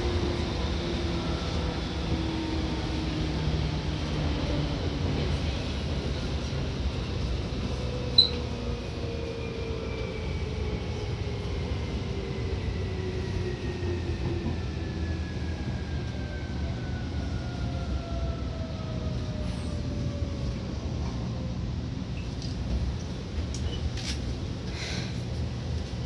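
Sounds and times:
train rumble: 0.0 - 26.0.

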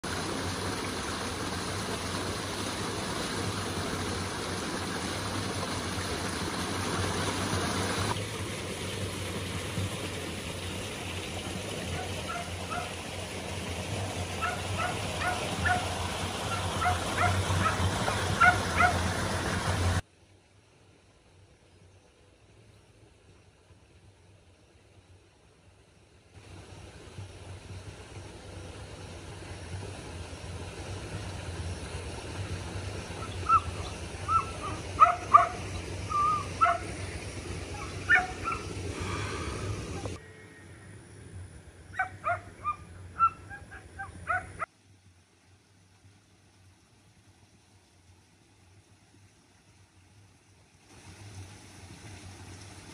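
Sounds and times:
dog yapping: 12.0 - 12.9, 14.4 - 15.8, 16.8 - 17.8, 18.4 - 19.0, 34.3 - 36.9, 37.7 - 38.7, 42.0 - 44.6.

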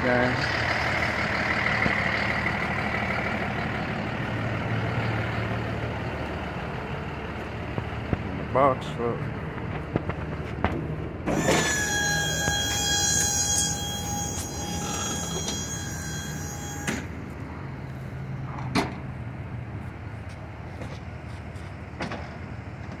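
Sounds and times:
hydraulic pump whining: 11.2 - 17.6
sharp metal clanks: 11.3 - 17.2.

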